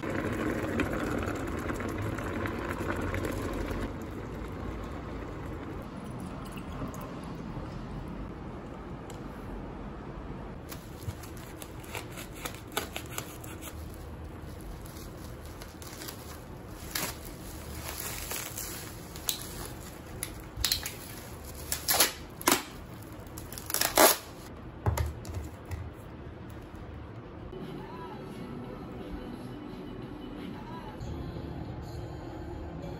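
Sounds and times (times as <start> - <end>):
bubble wrap crinkling: 10.6 - 24.5.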